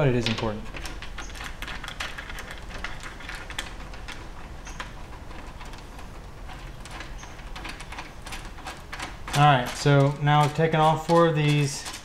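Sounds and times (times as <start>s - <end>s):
wrench clicking on bolts: 6.9s - 12.0s.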